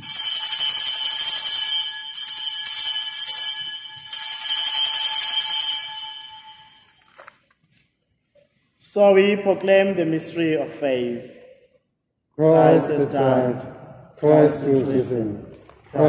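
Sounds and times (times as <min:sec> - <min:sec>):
small altar bells ringing: 0:00.0 - 0:07.0.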